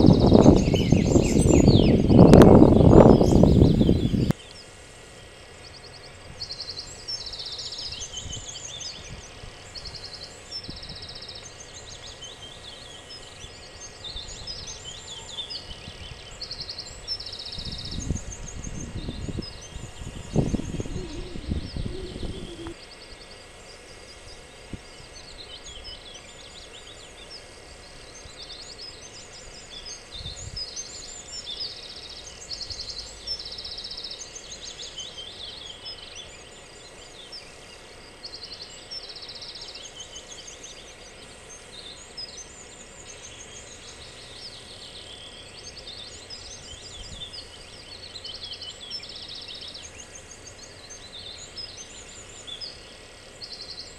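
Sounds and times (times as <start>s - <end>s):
birds singing and trilling: 0.0s - 53.9s
low rumble: 18.1s - 22.8s.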